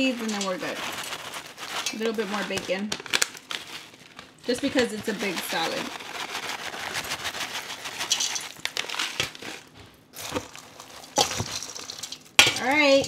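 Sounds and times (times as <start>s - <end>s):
plastic bag crinkling: 0.0s - 13.0s
salad leaves rustling: 0.0s - 13.0s
bacon bits ticking down: 10.2s - 13.0s.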